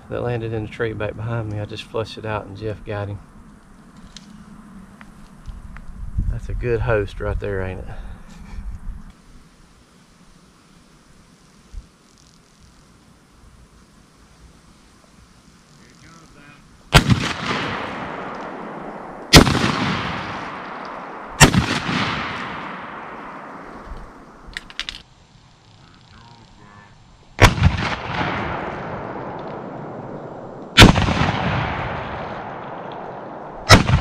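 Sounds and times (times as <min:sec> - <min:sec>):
shotgun shots with echo: 0:16.9 - 0:23.7, 0:27.4 - 0:30.1, 0:30.8 - 0:34.0.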